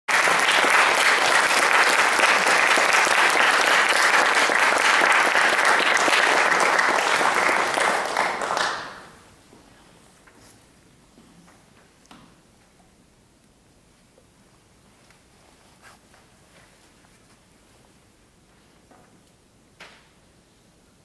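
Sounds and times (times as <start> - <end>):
audience applauding: 0.1 - 9.2.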